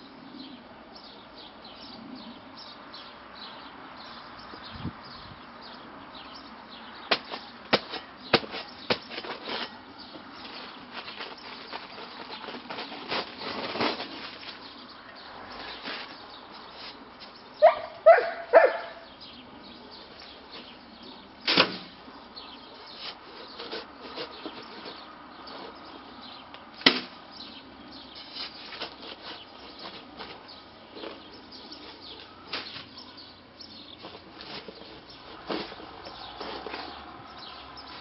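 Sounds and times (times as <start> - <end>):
shovel knocking metal wheelbarrow: 7.1 - 14.4, 34.0 - 37.0
shovel scraping concrete mix: 7.1 - 14.7, 22.8 - 25.9, 28.1 - 33.0, 33.9 - 38.0.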